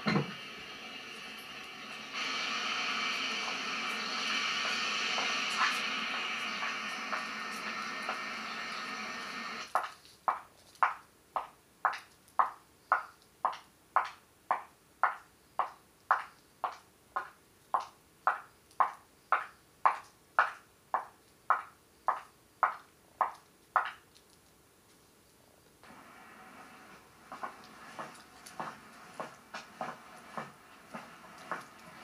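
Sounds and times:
footsteps on pavement: 27.3 - 32.0.

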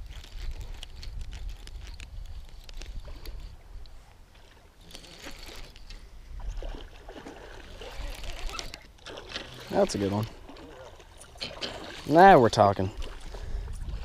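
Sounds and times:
wind rumbling on microphone: 0.0 - 4.3, 5.7 - 8.8, 12.7 - 14.0.

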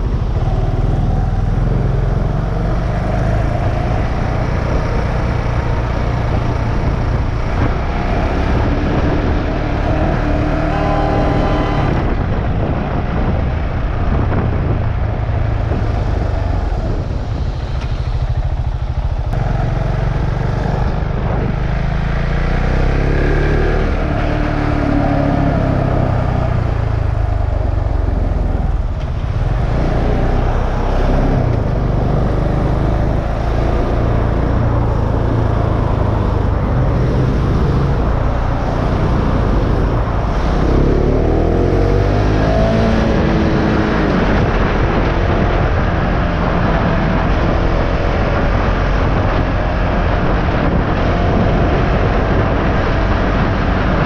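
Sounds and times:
motorcycle engine running: 0.0 - 23.2.

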